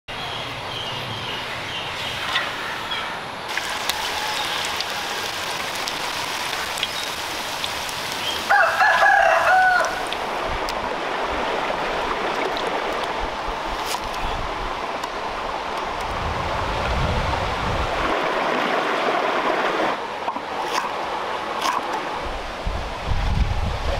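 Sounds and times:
hot oil sizzling: 3.5 - 10.3
rooster crowing: 3.7 - 5.3, 8.5 - 10.1.

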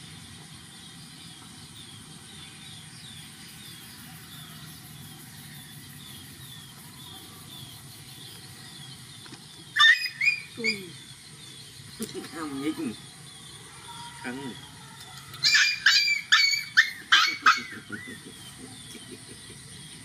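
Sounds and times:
bird chirping: 0.0 - 20.0
young animal squealing: 9.8 - 11.0, 15.4 - 18.2.

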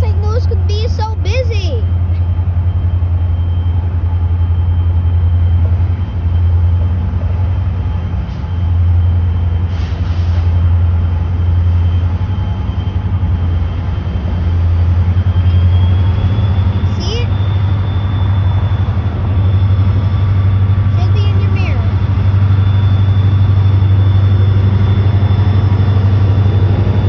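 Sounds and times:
freight train rumbling: 0.0 - 27.0
faint high whine: 14.5 - 27.0.

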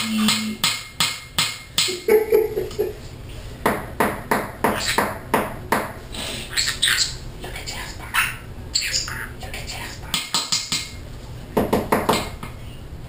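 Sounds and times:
parrot tapping beak: 3.7 - 5.9, 10.0 - 11.0, 11.6 - 12.4.

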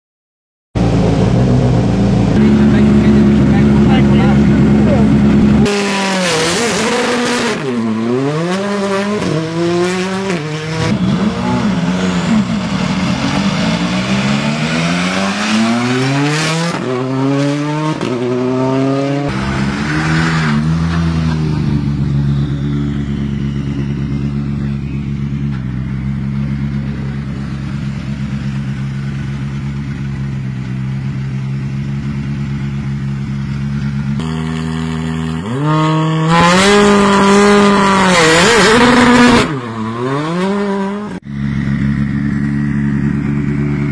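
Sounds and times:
car engine revving and idling: 0.8 - 43.9.

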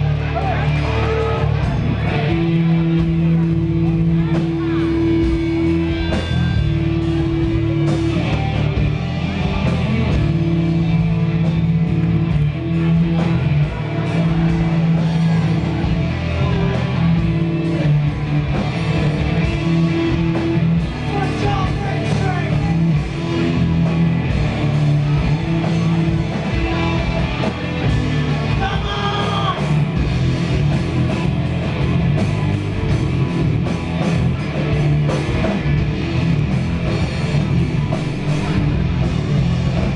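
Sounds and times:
bass guitar: 0.0 - 39.9
distorted electric guitars: 0.0 - 39.9
drum kit: 0.0 - 39.9.

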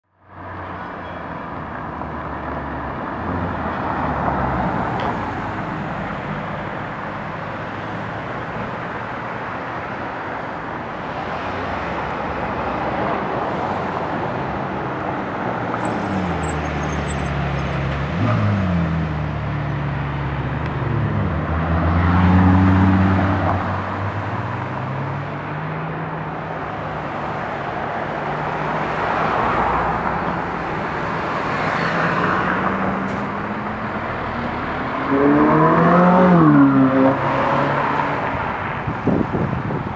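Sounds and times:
cars on the road hiss: 15.6 - 18.6.

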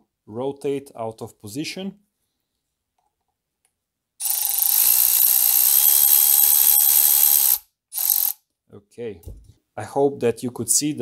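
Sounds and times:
electric ratchet motor whine: 4.2 - 8.4.

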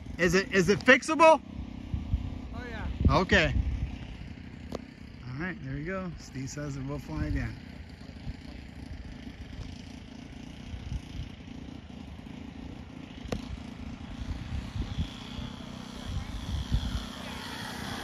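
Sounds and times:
distant model airplane motor whine: 0.0 - 18.0
wind on microphone: 14.2 - 18.0.

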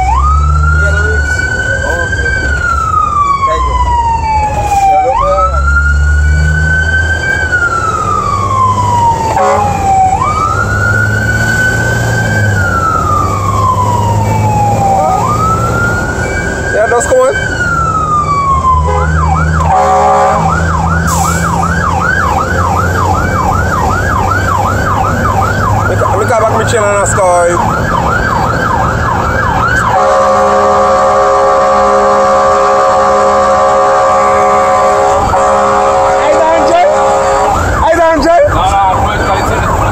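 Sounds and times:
fire truck siren wailing: 0.0 - 39.9
loud steady blaring horn: 9.2 - 10.4, 14.2 - 15.6, 18.7 - 23.2, 29.7 - 38.5.

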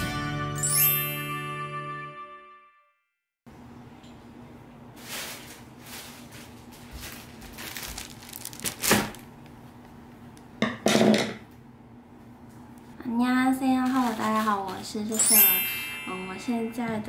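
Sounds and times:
plastic bag rustling and crinkling: 5.0 - 9.5, 13.7 - 15.1.

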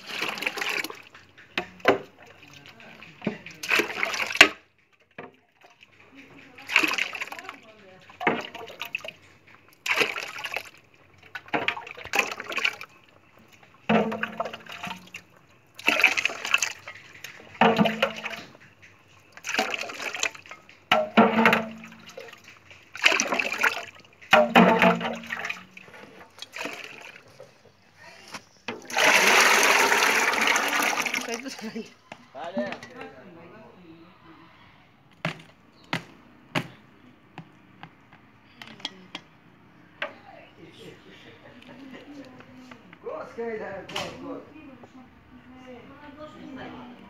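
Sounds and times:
juice splashing from bowl into pot: 8.2 - 18.7, 19.3 - 27.3, 28.7 - 31.7
heavy pour of thick juice: 28.7 - 31.6.

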